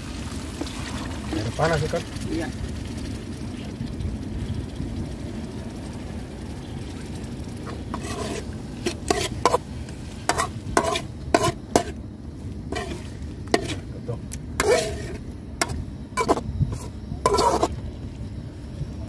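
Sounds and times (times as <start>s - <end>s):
steady low rumble: 2.0s - 19.0s
spoon clinking and scraping pan: 7.9s - 9.6s, 10.3s - 12.0s, 12.7s - 13.8s, 14.6s - 17.7s
spoon stirring thick sauce: 7.9s - 9.6s, 10.3s - 12.0s, 12.7s - 13.8s, 14.6s - 17.8s.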